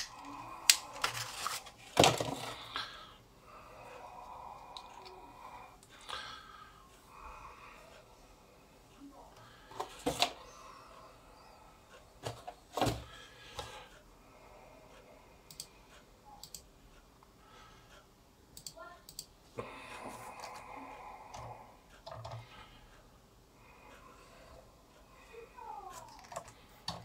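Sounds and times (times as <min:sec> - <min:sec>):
rustling and clattering: 0:01.0 - 0:02.6.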